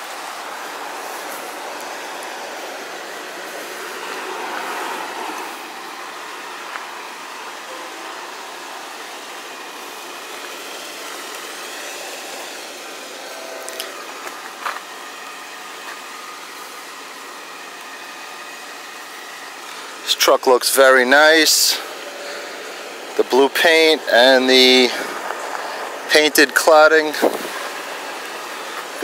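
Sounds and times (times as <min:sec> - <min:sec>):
background traffic noise: 0:00.0 - 0:29.0.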